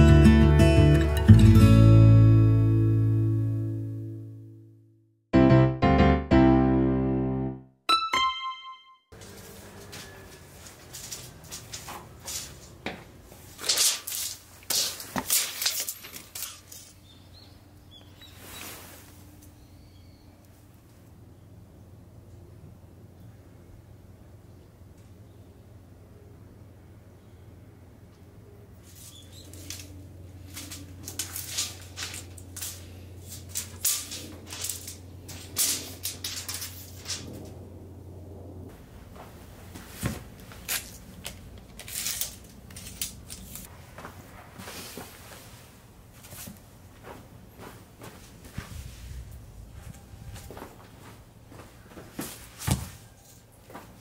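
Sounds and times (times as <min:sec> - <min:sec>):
crunching and scraping on gravel: 0:09.2 - 0:17.0, 0:29.0 - 0:37.5, 0:39.9 - 0:45.5
tape measure scraping on gravel: 0:13.4 - 0:17.0, 0:30.5 - 0:37.4.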